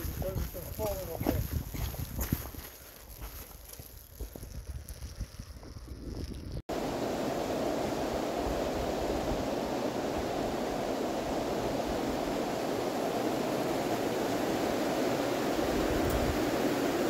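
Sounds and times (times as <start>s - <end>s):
stream rushing: 6.7s - 17.0s.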